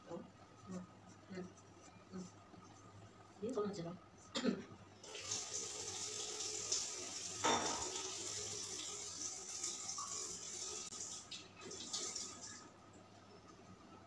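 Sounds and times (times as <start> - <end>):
tap water running into sink: 5.0 - 12.7.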